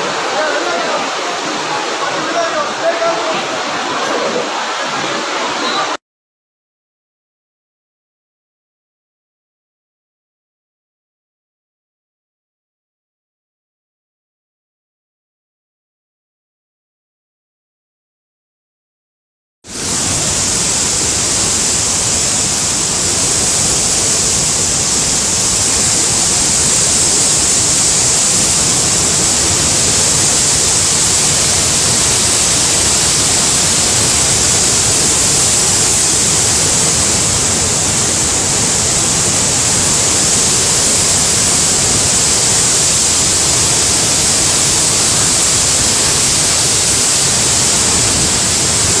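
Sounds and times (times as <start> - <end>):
floodwater rushing over rocks: 0.0 - 6.0, 19.7 - 49.0.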